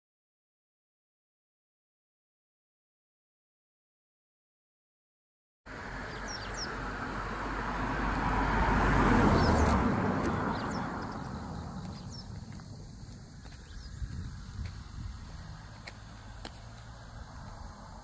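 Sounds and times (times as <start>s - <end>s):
birds chirping: 5.7s - 18.0s
vehicle passing: 5.7s - 18.0s.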